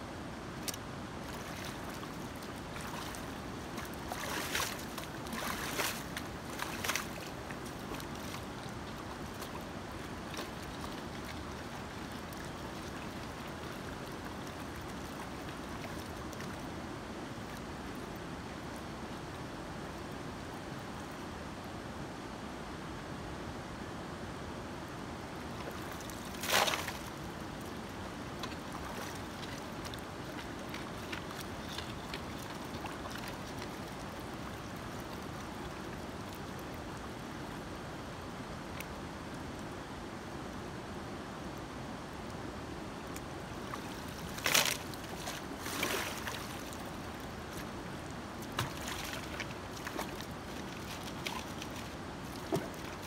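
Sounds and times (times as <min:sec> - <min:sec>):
river water running: 0:00.0 - 0:53.0
shovel splashing in water: 0:00.7 - 0:09.6, 0:25.6 - 0:27.2, 0:28.4 - 0:34.0, 0:43.7 - 0:47.7, 0:48.4 - 0:53.0
shovel splash: 0:04.1 - 0:07.4, 0:25.7 - 0:27.1, 0:44.1 - 0:46.7.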